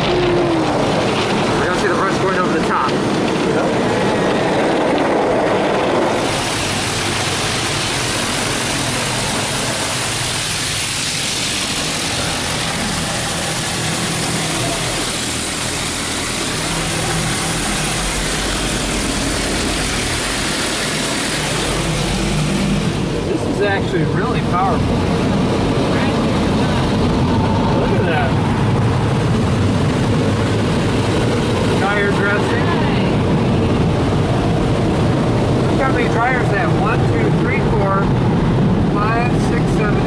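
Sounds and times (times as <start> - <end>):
car wash water rushing: 0.0 - 40.0
low hum: 0.0 - 40.0.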